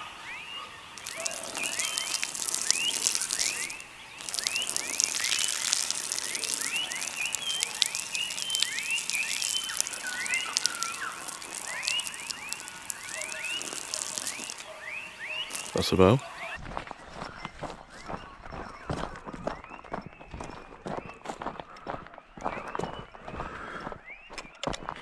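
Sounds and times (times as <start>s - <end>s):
frogs chirping: 0.0s - 16.6s
man urinating on dry grass: 0.8s - 25.0s.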